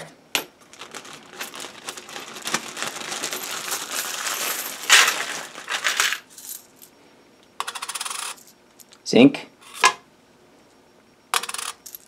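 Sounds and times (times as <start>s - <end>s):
coins clinking and jingling: 1.2s - 6.9s, 7.7s - 8.6s, 11.4s - 12.0s.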